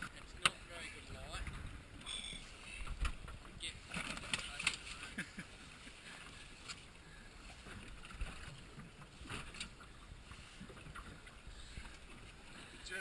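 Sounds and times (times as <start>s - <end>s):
wind and water hiss: 0.0s - 13.0s.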